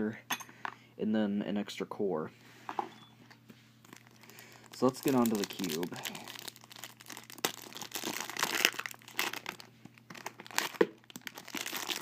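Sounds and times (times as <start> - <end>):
plastic bag crinkling: 3.8 - 12.0.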